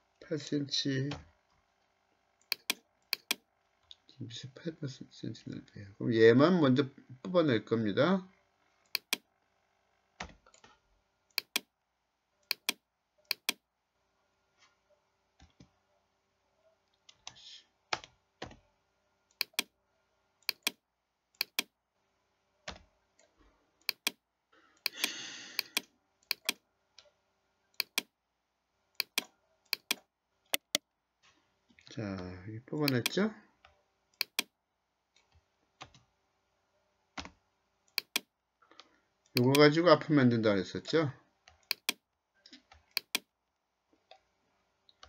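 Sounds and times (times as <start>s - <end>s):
mouse and keyboard clicks: 2.4s - 3.4s, 8.9s - 9.2s, 10.2s - 11.7s, 12.4s - 13.6s, 19.3s - 19.7s, 20.4s - 20.8s, 21.4s - 21.7s, 23.8s - 24.2s, 24.8s - 27.1s, 27.8s - 28.1s, 29.0s - 30.8s, 32.8s - 33.2s, 34.2s - 34.5s, 37.2s - 39.7s, 41.5s - 43.3s.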